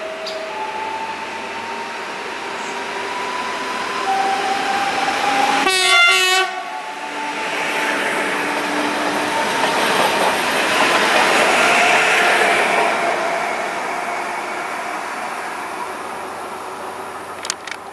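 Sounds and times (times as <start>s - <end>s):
traction motors whining: 0.0s - 13.2s
wheels rushing on rails: 0.0s - 17.9s
train horn blast: 5.3s - 7.5s.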